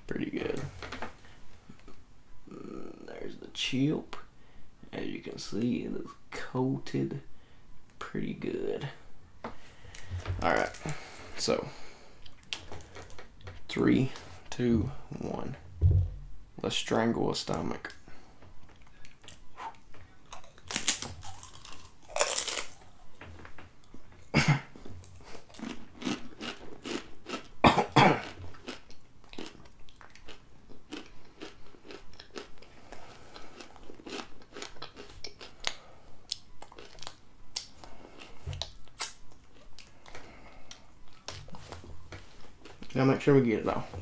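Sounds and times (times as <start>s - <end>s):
crunchy chip chewing: 20.3s - 23.0s, 25.1s - 27.6s, 28.2s - 40.1s.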